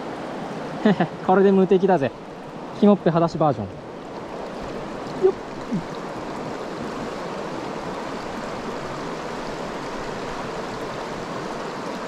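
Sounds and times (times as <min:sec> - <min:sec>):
stream running over rocks: 0:00.0 - 0:12.0.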